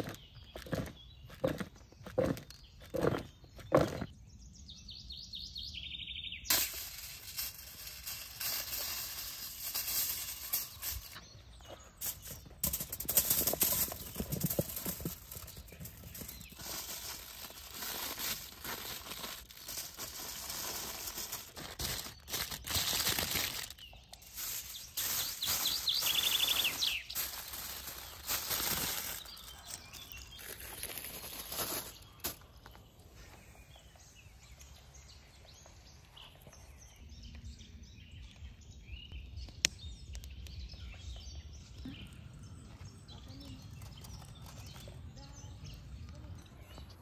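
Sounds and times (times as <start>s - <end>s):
foil crinkling: 6.5s - 11.2s, 12.0s - 32.6s
vegetables tumbling onto foil: 12.0s - 32.5s.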